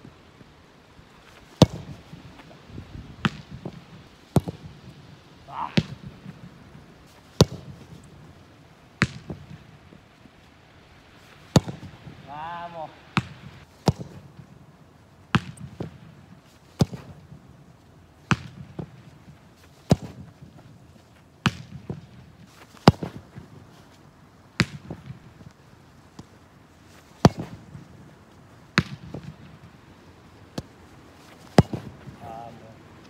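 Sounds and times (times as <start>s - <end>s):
football kick smacks: 1.3s - 2.5s, 3.2s - 8.3s, 9.0s - 9.7s, 11.5s - 12.0s, 12.6s - 14.4s, 15.3s - 16.0s, 16.6s - 17.3s, 18.2s - 19.1s, 19.7s - 20.6s, 21.4s - 23.5s, 24.6s - 25.4s, 26.9s - 28.1s, 28.8s - 29.6s, 30.5s - 32.3s.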